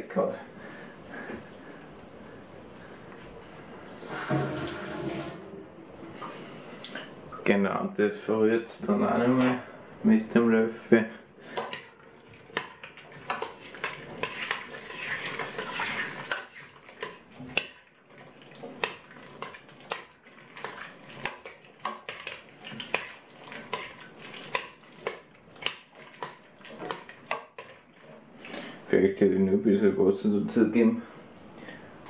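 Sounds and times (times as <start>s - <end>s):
spoon scraping a metal pot: 4.0s - 5.4s, 13.3s - 16.6s
stew sloshing: 11.5s - 28.9s.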